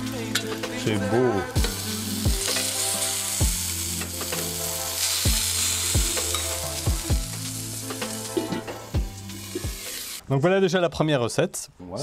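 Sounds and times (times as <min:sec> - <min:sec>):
meat sizzling on hot plate: 0:00.0 - 0:10.2
music with kick drum and bass: 0:01.6 - 0:02.7, 0:03.4 - 0:04.6, 0:05.2 - 0:09.9.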